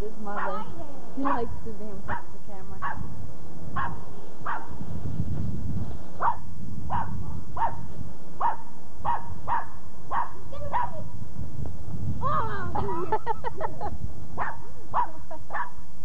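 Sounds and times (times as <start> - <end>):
dog barking: 0.3 - 1.5, 2.1 - 3.1, 3.8 - 4.8, 6.2 - 11.1, 14.4 - 15.8
low rumble: 11.0 - 14.4.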